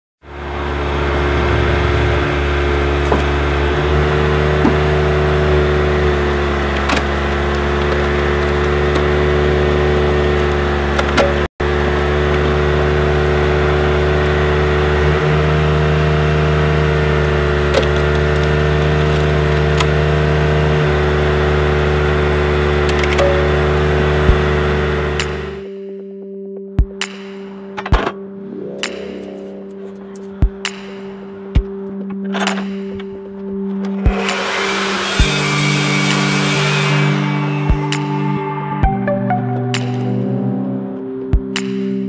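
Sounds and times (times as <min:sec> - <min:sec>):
car engine running: 0:00.3 - 0:25.6.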